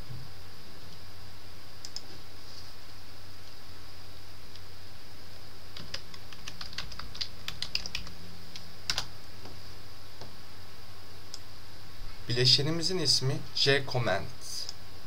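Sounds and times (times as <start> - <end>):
faint high whine: 0.0 - 15.0
keyboard typing: 5.8 - 9.1.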